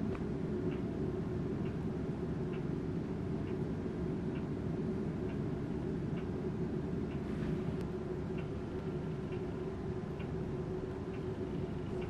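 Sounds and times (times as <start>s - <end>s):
low room hum: 0.0s - 12.0s
clock ticking: 8.3s - 12.0s.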